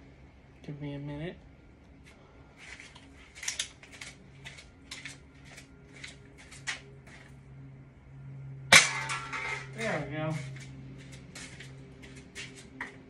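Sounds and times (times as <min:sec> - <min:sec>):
flip-flop footsteps slapping: 0:10.4 - 0:13.0.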